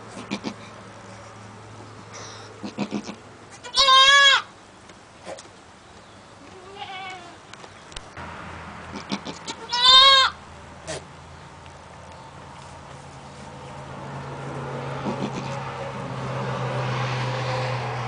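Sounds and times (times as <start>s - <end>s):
goat kid bleating: 0.1s - 1.2s, 2.3s - 4.5s, 6.4s - 7.4s, 8.9s - 11.0s, 15.0s - 15.6s
rustling in straw: 12.5s - 13.9s.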